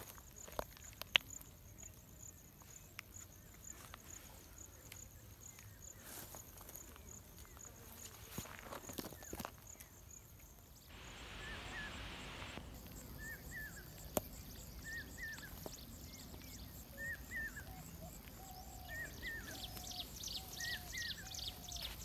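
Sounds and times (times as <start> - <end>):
insects chirping: 0.0 - 22.0
footsteps on dirt path: 5.9 - 9.8, 14.0 - 17.2, 18.2 - 22.0.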